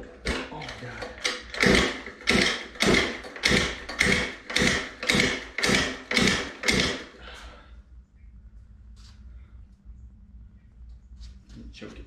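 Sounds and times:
recoil starter pulls: 0:00.0 - 0:07.2.

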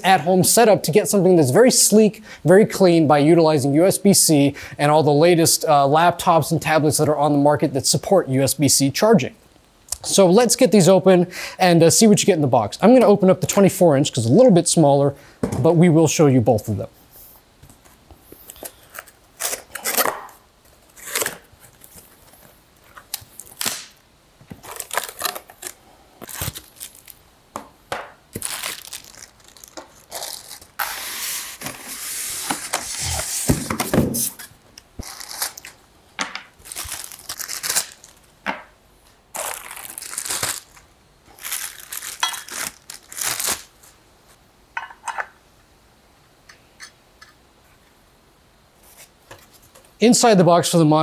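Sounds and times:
cardboard and styrofoam rustling: 0:28.3 - 0:34.5.

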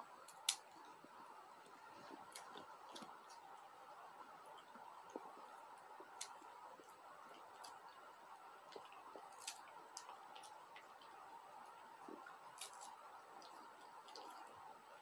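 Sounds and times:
faint steady hum: 0:00.0 - 0:15.0
puppy chewing crunchy snack: 0:04.6 - 0:14.6.

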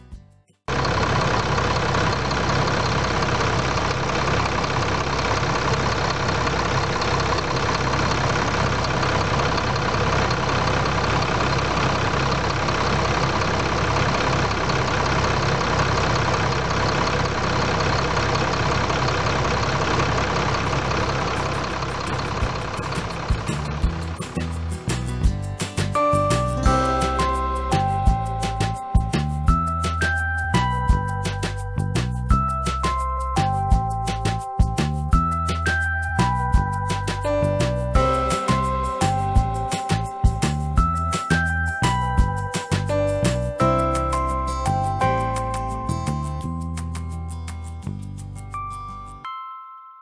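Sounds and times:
diesel truck engine idling: 0:00.7 - 0:46.9.

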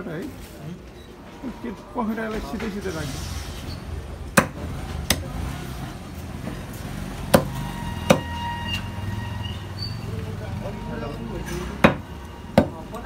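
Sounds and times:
knife chopping on wooden block: 0:04.4 - 0:05.2, 0:11.8 - 0:12.8.

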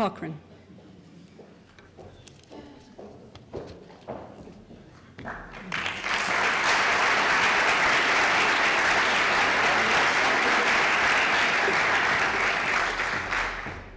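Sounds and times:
audience applauding: 0:05.2 - 0:13.9.

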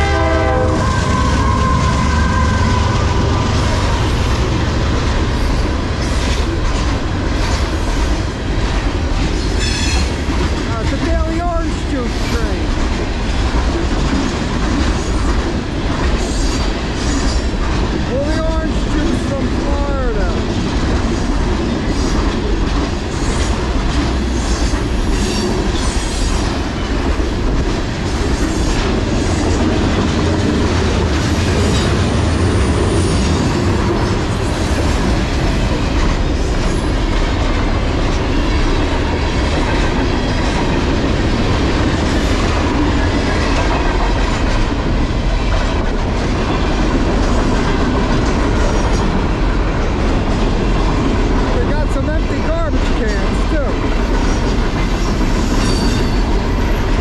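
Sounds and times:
clickety-clack over rail joints: 0:00.0 - 0:57.0
train wheels rumbling on rail: 0:00.0 - 0:57.0
high wheel squeal: 0:54.9 - 0:56.8.

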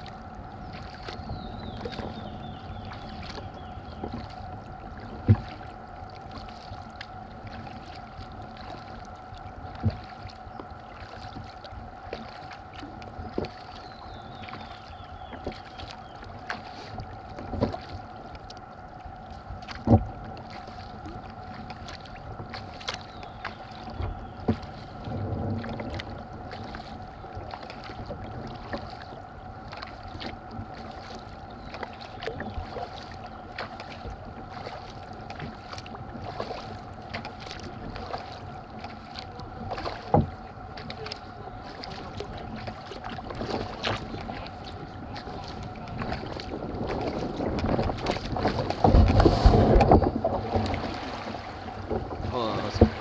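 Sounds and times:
paddle blades dipping and dripping: 0:00.0 - 0:53.0.

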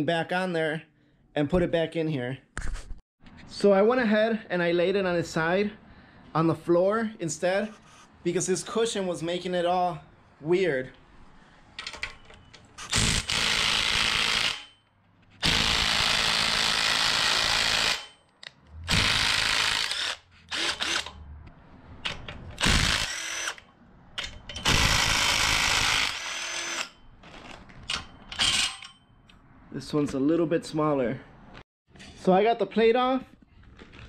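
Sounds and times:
cordless drill spinning: 0:18.9 - 0:21.1, 0:22.6 - 0:23.7, 0:24.6 - 0:27.6.

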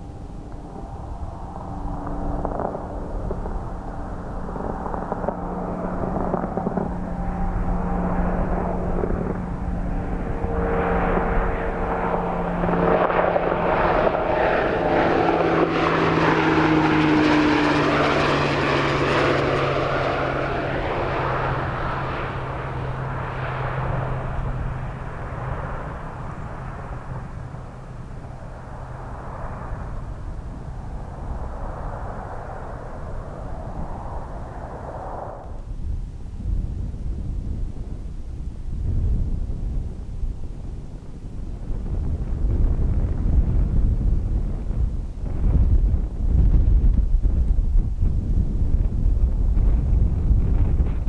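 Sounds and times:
military aircraft flying past: 0:00.0 - 0:51.0.

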